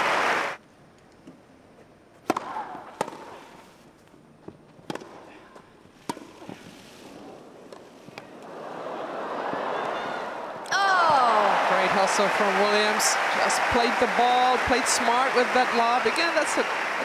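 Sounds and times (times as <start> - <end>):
crowd noise: 0.0 - 0.6, 8.1 - 17.0
tennis ball hits and bounces: 2.2 - 3.4, 4.4 - 5.2, 6.0 - 6.7.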